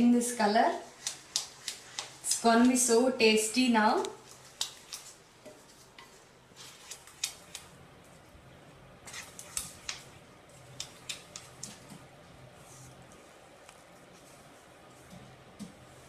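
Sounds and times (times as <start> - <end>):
wooden spatula scraping a pan: 0.9 - 3.0.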